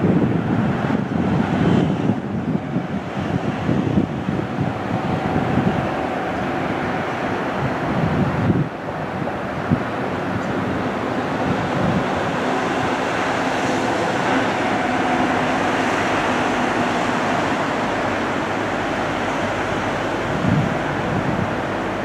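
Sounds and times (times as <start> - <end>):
wind thumps on microphone: 0.0 - 10.8, 20.1 - 21.6
distant train rumbling on rails: 0.0 - 22.0.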